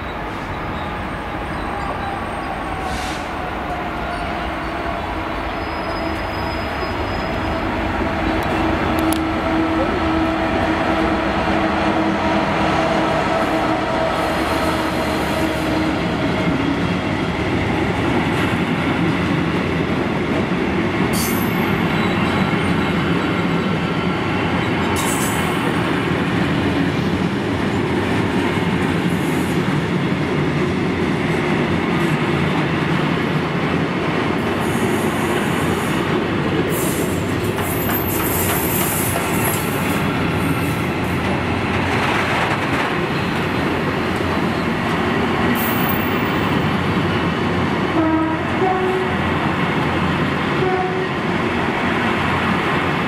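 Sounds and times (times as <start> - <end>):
diesel locomotive engine: 0.0 - 53.0
wheel squeals: 5.5 - 7.7.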